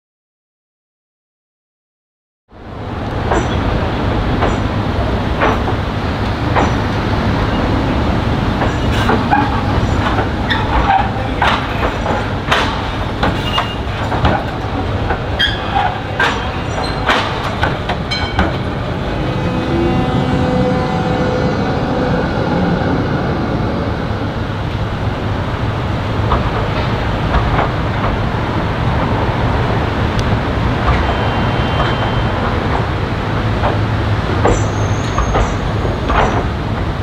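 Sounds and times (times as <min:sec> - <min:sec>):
tram rolling rumble: 0:02.5 - 0:37.0
wheels clanking over rail joints: 0:02.9 - 0:20.8, 0:24.6 - 0:37.0
wheels squeaking: 0:08.6 - 0:18.7.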